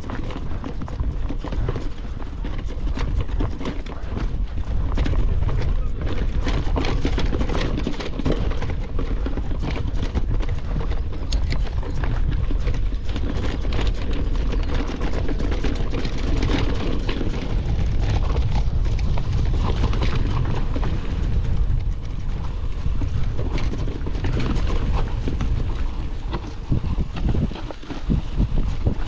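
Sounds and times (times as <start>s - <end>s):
bike tyres rumbling on gravel: 0.0s - 29.0s
small rattles and clicks: 0.0s - 29.0s.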